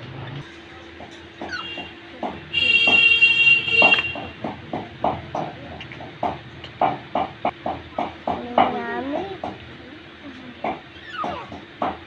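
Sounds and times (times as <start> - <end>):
parakeet shrill calls: 1.4 - 1.9, 10.9 - 11.6.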